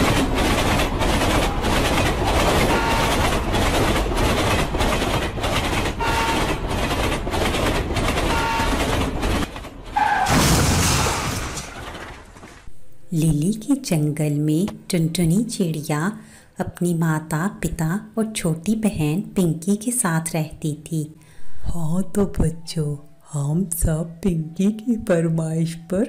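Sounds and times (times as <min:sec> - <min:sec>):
train clickety-clack: 0:00.0 - 0:10.2
train horn toots: 0:02.6 - 0:03.4, 0:06.0 - 0:06.6, 0:08.3 - 0:08.9
loud crash: 0:10.2 - 0:12.7.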